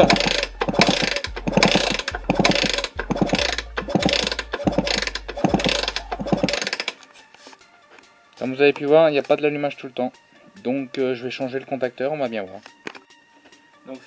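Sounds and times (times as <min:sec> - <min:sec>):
engine kick-started not starting: 0:00.0 - 0:07.0.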